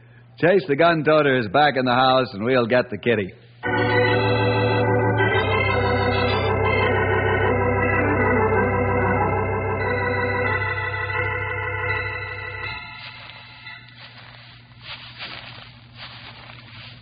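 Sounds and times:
organ playing held chords: 3.6 - 16.6.

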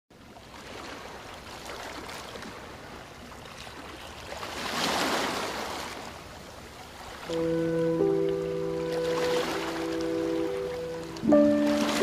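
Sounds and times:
surf breaking on rocks: 8.8 - 12.0.

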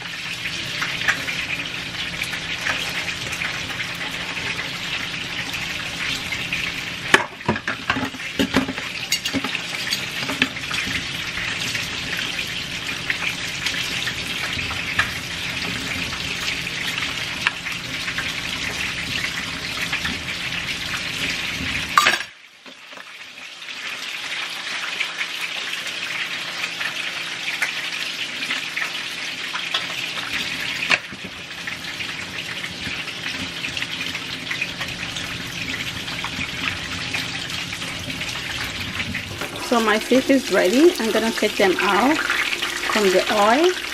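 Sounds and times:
tap water splashing in sink: 7.1 - 11.0
utensils clinking: 8.4 - 10.4.

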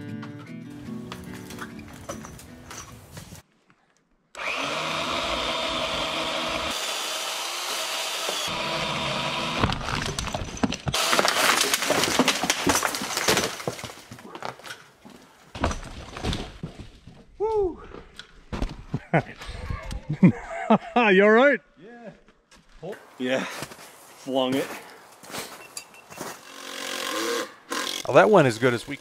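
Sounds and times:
pole saw running: 4.4 - 9.8, 26.3 - 29.0
tree trunk crashing through branches: 9.6 - 14.1.

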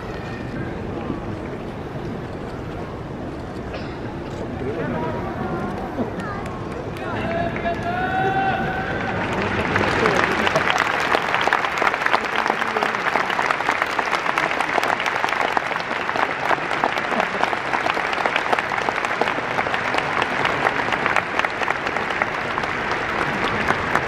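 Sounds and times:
stadium crowd applauding: 6.2 - 24.0.

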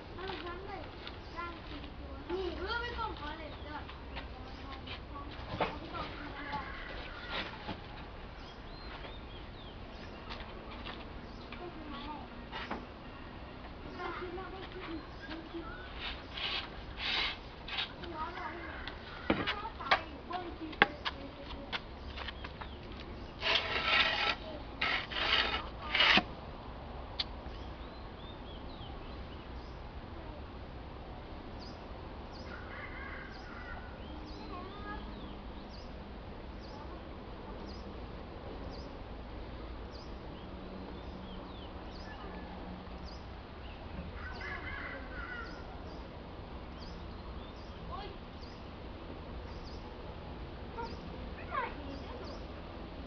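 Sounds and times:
outdoor background noise: 0.0 - 53.0
scraping rustles: 0.2 - 8.1, 14.0 - 26.3.

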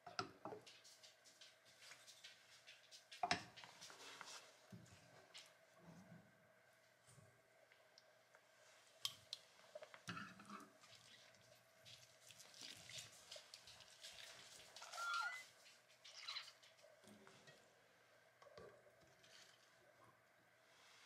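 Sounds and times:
wet squelching of cloth bag: 10.9 - 14.8.

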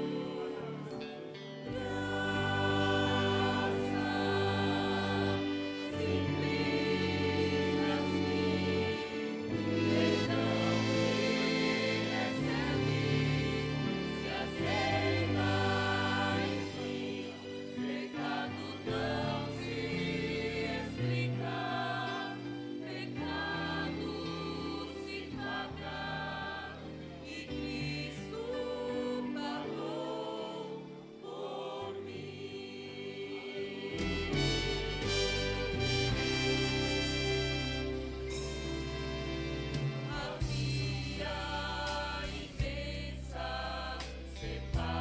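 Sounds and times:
instrumental accompaniment with bass: 0.0 - 28.9, 33.2 - 45.0
choir singing gospel in harmony: 0.0 - 45.0.

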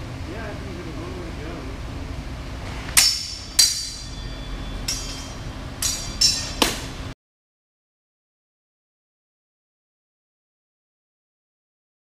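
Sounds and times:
sabre blades clashing: 3.0 - 7.0.

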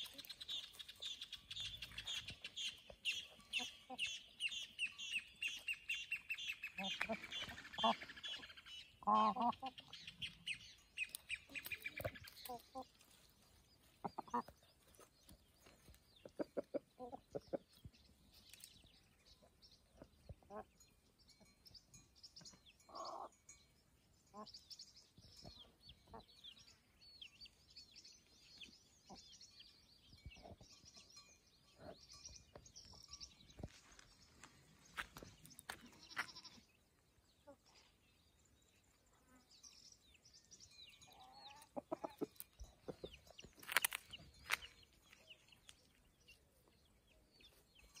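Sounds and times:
farm animal call: 0.0 - 13.0
small birds chirping: 0.0 - 48.0.

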